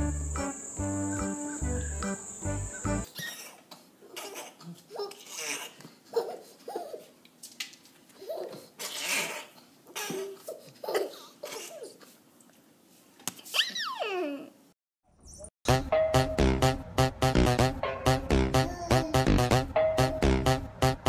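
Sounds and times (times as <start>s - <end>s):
baby giggling: 3.1s - 7.1s, 8.2s - 12.0s, 18.6s - 19.4s.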